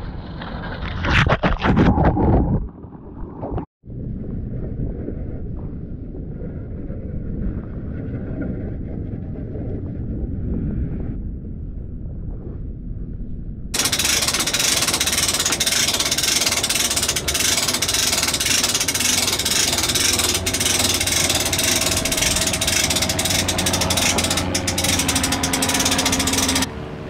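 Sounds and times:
winch clicking rattle: 13.8 - 26.7
steady hum: 13.8 - 27.0.

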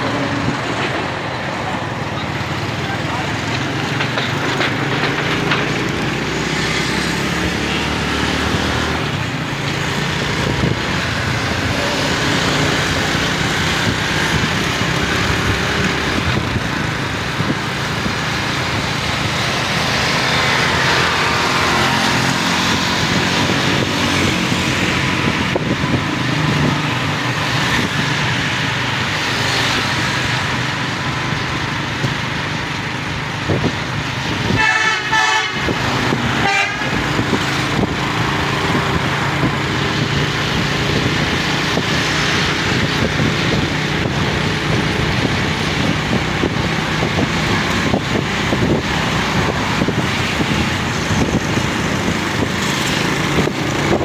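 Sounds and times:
road noise: 0.0 - 54.0.

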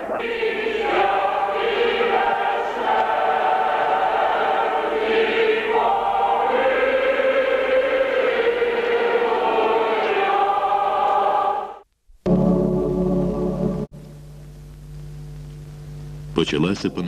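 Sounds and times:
choir singing a slow chant: 0.0 - 11.8.

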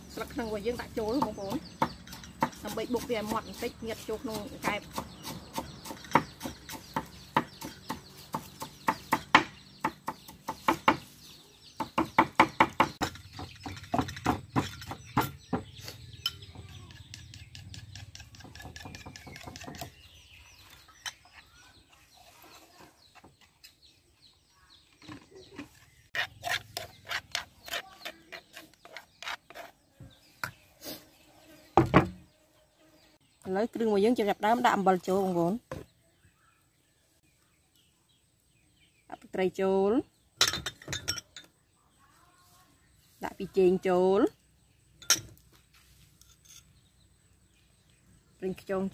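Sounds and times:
knife chopping on wooden block: 16.6 - 20.0.

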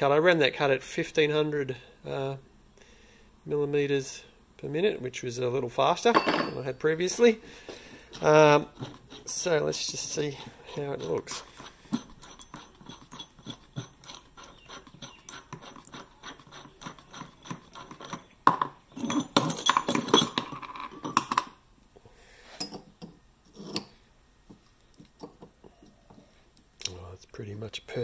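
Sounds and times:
metal clinking clatter: 6.1 - 6.6, 11.9 - 14.2, 18.5 - 21.5.

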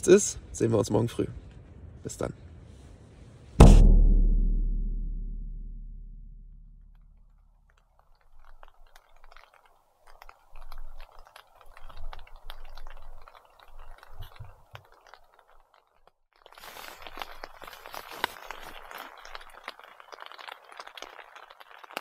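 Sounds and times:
rain pattering on a tarp: 7.6 - 22.0.

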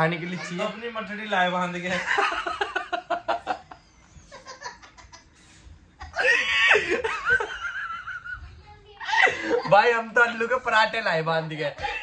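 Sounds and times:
young man laughing heartily: 1.9 - 5.3, 6.0 - 8.4.

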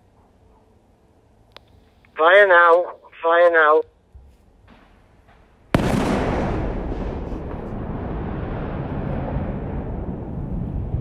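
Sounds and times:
long loud rumble: 5.7 - 11.0
sharp explosive blast: 5.7 - 11.0.

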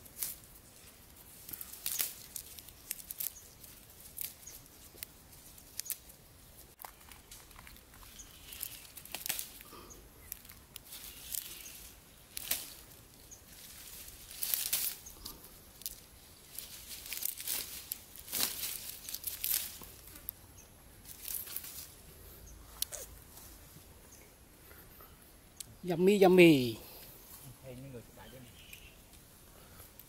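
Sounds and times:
foliage rustling: 0.0 - 30.0
stems snapping: 1.1 - 20.4, 21.0 - 22.0, 22.8 - 23.5.

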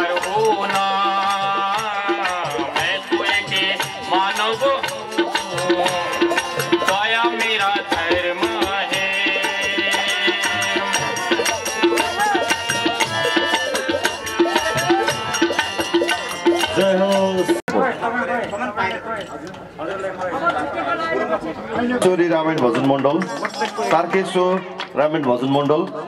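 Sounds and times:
quick percussion strikes: 0.0 - 17.7.

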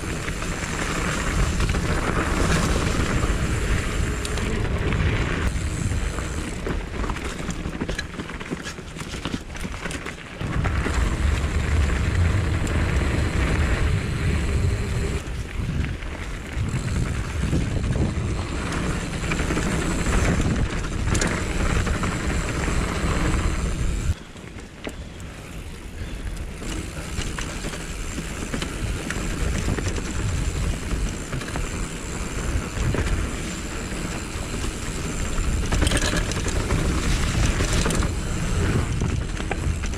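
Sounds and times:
wind rumble on microphone: 0.0 - 8.0, 10.4 - 24.2, 25.8 - 39.9
bike knocks and rattles: 0.0 - 15.2, 26.6 - 39.9
bike tyre noise on dirt: 0.0 - 39.9.

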